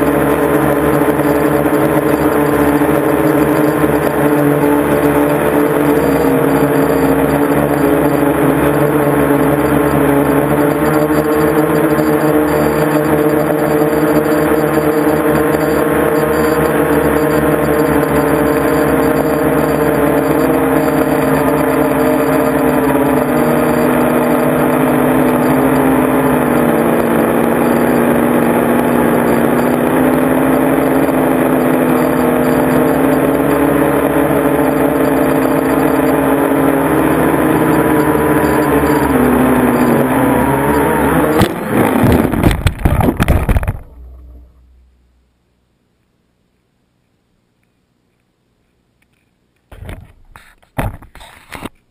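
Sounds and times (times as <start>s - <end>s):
drone motors whining: 0.0s - 45.0s
drone crashing on gravel: 34.4s - 45.0s.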